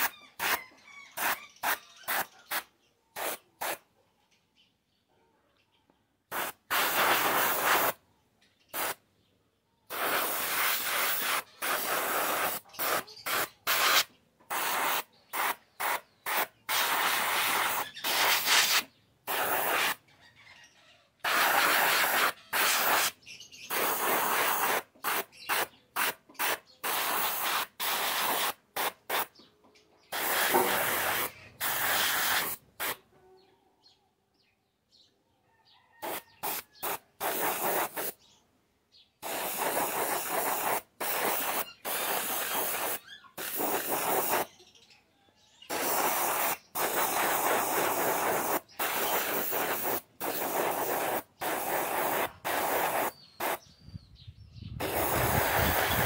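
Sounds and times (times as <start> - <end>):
airbrush spraying hiss: 3.2 - 3.8, 6.3 - 8.0, 8.8 - 9.0, 9.9 - 20.0, 21.3 - 29.3, 30.1 - 33.0, 36.0 - 38.2, 39.2 - 44.5, 45.7 - 53.6, 54.8 - 56.0.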